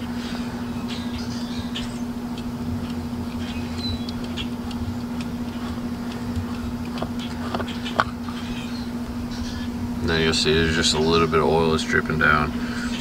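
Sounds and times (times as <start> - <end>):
low hum: 0.0 - 13.0
oil filter clicks: 2.3 - 8.3.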